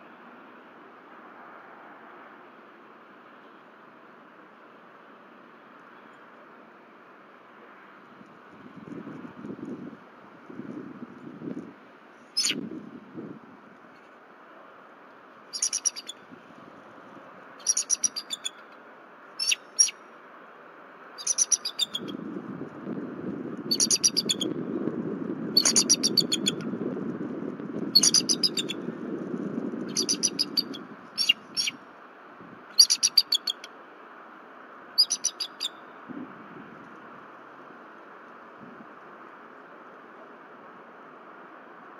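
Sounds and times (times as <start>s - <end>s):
eagle piping chatter: 12.4s - 12.6s, 15.5s - 16.2s, 17.6s - 18.6s, 19.4s - 20.0s, 21.2s - 22.1s, 23.7s - 24.5s, 25.6s - 26.6s, 28.0s - 28.8s, 29.9s - 31.8s, 32.8s - 33.7s, 35.0s - 35.8s.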